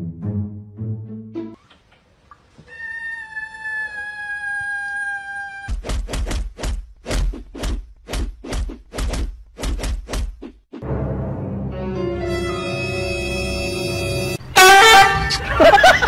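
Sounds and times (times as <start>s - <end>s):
cat crying: 2.6s - 5.7s.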